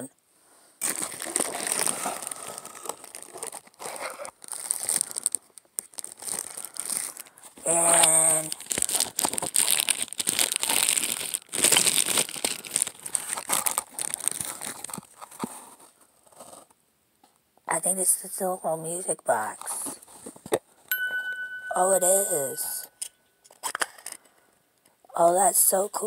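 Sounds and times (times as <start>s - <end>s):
plastic and bubble wrap crinkling: 0.8s - 16.8s.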